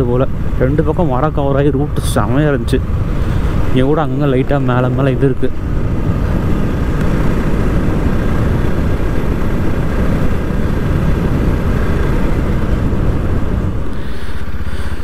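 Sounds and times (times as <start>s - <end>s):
wind buffeting helmet microphone: 0.0s - 15.0s
motorcycle engine running: 5.6s - 15.0s.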